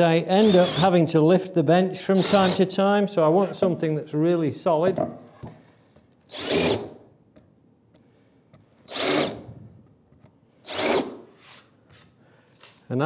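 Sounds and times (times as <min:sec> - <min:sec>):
cordless drill whirring: 0:00.4 - 0:00.9, 0:02.2 - 0:02.6, 0:06.3 - 0:07.0, 0:08.8 - 0:09.6, 0:10.6 - 0:11.3.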